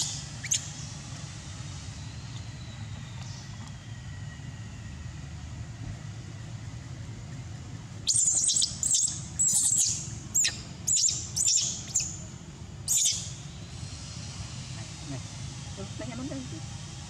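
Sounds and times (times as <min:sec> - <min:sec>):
bird high-pitched chirps: 0:00.0 - 0:00.8, 0:08.1 - 0:12.2, 0:12.9 - 0:13.5
low background hum: 0:00.0 - 0:17.0.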